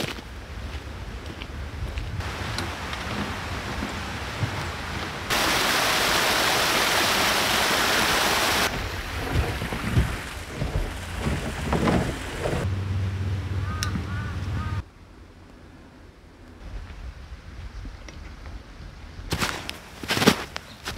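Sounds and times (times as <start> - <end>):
soft knocks and rustles: 9.2 - 12.7.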